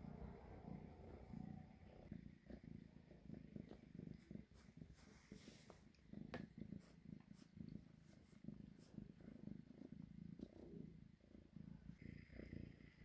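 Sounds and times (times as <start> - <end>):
kitten purring: 0.0 - 13.0.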